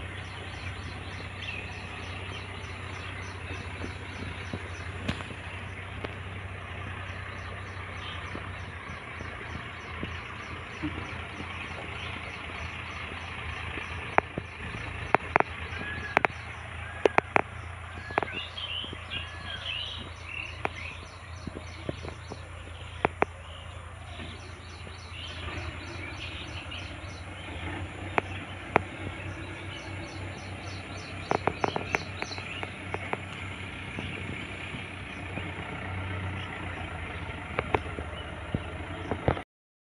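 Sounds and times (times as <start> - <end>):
sharp clicks: 8.3 - 19.0, 20.0 - 23.4, 28.1 - 28.9, 30.4 - 35.5
insects pulsing high-pitched: 28.0 - 33.2.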